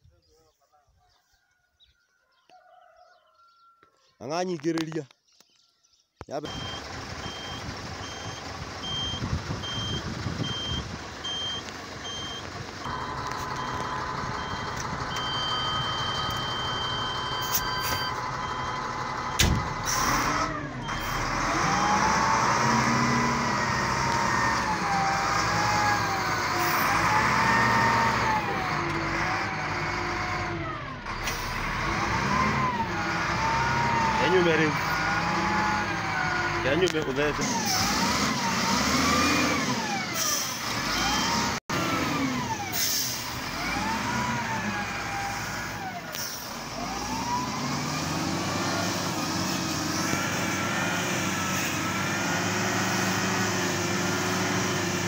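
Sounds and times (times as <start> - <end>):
warning alarm beeping: 6.4 - 20.2, 20.8 - 22.2
diesel engine running: 6.4 - 55.0.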